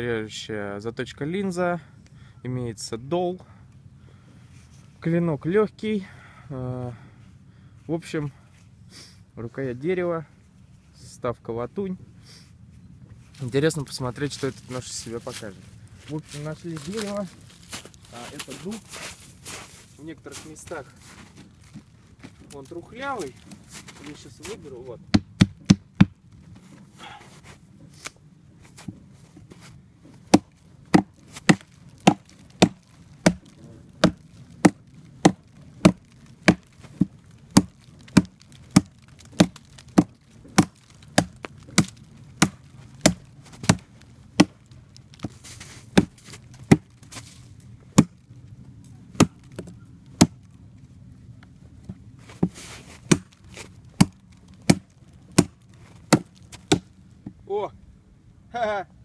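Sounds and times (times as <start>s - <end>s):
knife chopping into wood: 30.3s - 36.7s, 37.6s - 43.8s, 44.4s - 44.6s, 52.4s - 53.4s, 54.0s - 56.9s.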